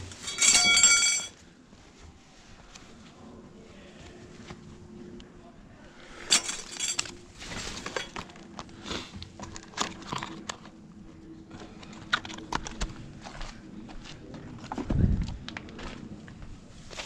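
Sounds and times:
rustling and knocking of items: 0:00.0 - 0:02.2, 0:06.3 - 0:10.6
faint steady hum: 0:00.0 - 0:17.0.

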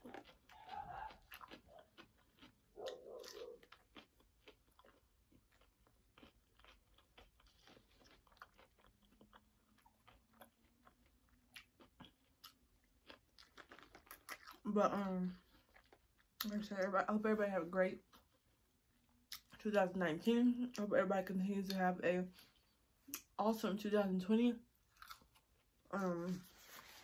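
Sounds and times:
crunchy chewing: 0:00.0 - 0:14.7, 0:24.8 - 0:27.0.

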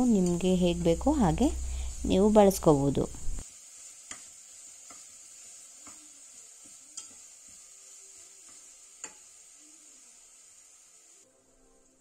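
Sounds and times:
paste frying in oil: 0:00.0 - 0:12.0
metal spatula clinking on pot: 0:06.9 - 0:07.2, 0:08.5 - 0:09.2.

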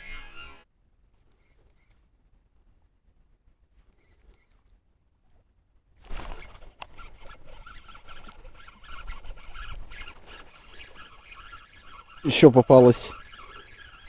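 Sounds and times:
fishing reel whirring and ticking: 0:06.6 - 0:14.0.

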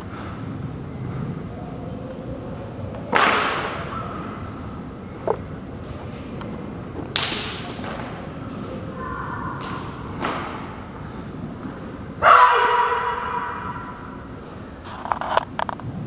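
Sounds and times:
loud sustained shout: 0:08.9 - 0:10.1, 0:12.2 - 0:14.2.

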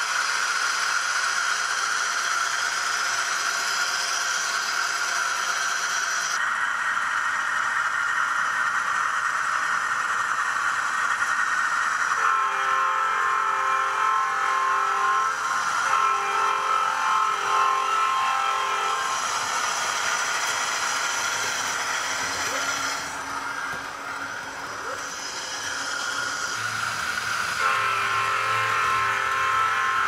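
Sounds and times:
diesel locomotive engine: 0:00.0 - 0:30.0
locomotive horn blasts: 0:12.2 - 0:19.2, 0:27.5 - 0:30.0.

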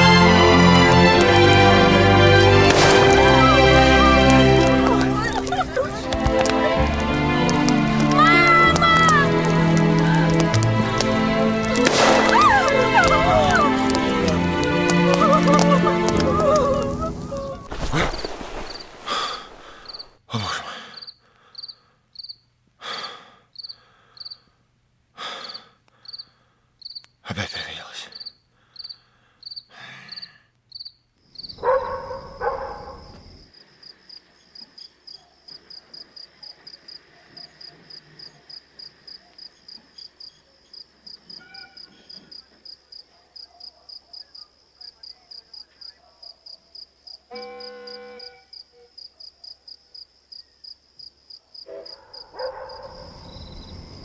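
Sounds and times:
crickets chirping: 0:00.0 - 0:24.6, 0:25.2 - 0:54.0
short loud noises: 0:11.0 - 0:14.1.

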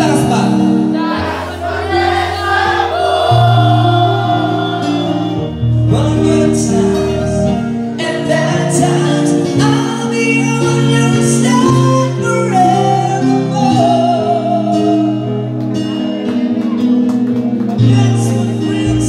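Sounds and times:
people singing: 0:00.0 - 0:15.2
bass line: 0:00.0 - 0:19.0
keyboard sustained chords: 0:00.0 - 0:19.0.

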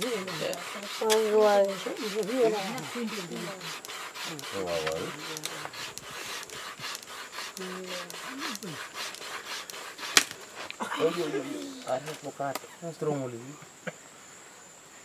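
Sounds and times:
fire thong rasping on wood: 0:00.0 - 0:12.6.

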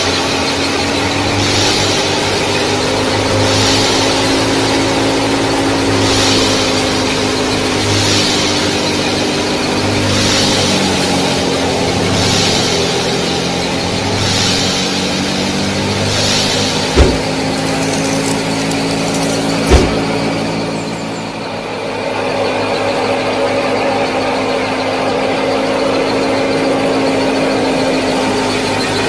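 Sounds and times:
small motor running: 0:00.0 - 0:21.3
sharp knocks: 0:16.0 - 0:20.2.

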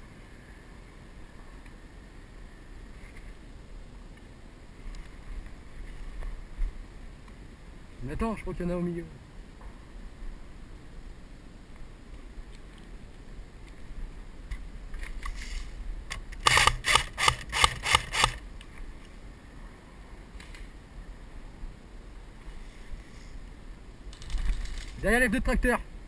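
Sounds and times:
airsoft rifle firing shots: 0:16.4 - 0:18.4.

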